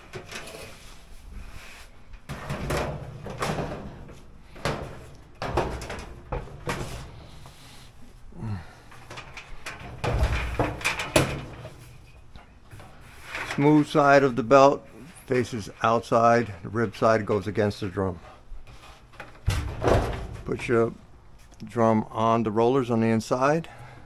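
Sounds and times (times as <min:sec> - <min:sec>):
metal drum knocking and scraping: 0:02.3 - 0:07.5, 0:08.9 - 0:12.0, 0:19.2 - 0:20.7.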